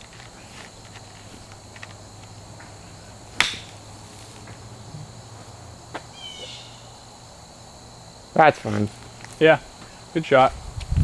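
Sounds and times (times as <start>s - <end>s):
golf club striking ball: 3.3s - 3.9s.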